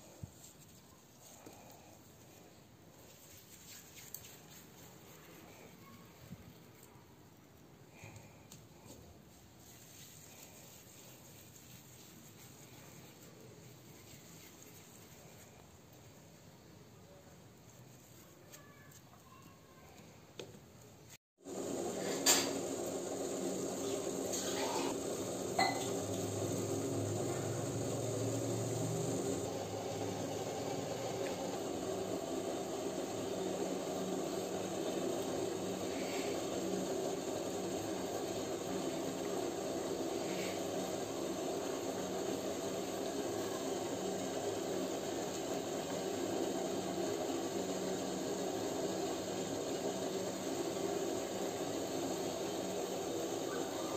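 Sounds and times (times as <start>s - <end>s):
dough frying in hot oil: 21.4s - 53.9s.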